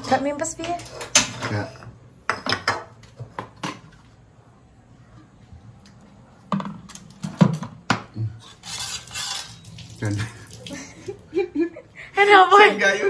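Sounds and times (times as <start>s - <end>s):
cookware and utensils clattering: 0.0s - 4.0s, 6.5s - 10.2s.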